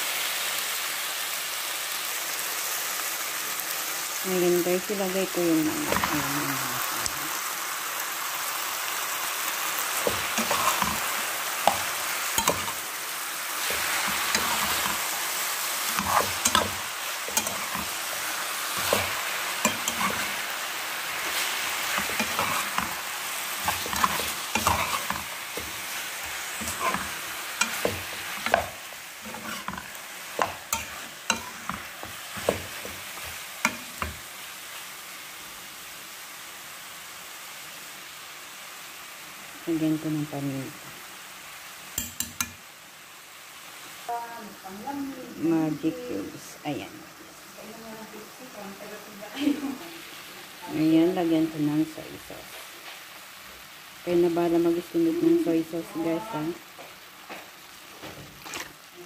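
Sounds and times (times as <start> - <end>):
chicken frying in hot oil: 0.0 - 59.0
metal spoon clinking and scraping pan: 10.0 - 12.8, 13.6 - 15.1, 15.8 - 20.4, 21.3 - 34.2, 42.0 - 42.6.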